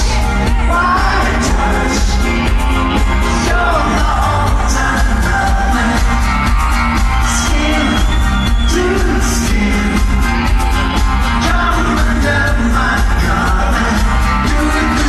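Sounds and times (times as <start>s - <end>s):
person singing into microphone: 0.0s - 10.6s, 11.2s - 15.0s
bass-heavy pop beat: 0.0s - 15.0s.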